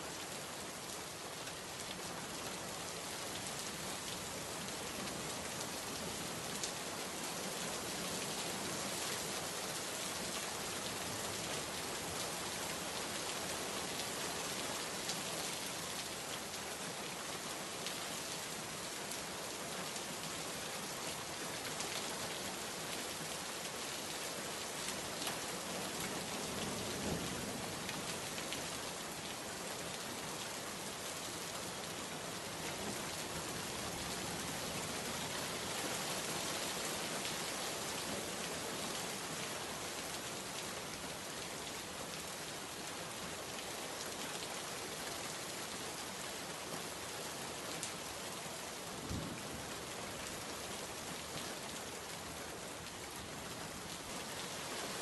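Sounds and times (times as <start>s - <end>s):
steady rain falling: 0.0s - 55.0s
low rumble of thunder: 49.0s - 49.7s.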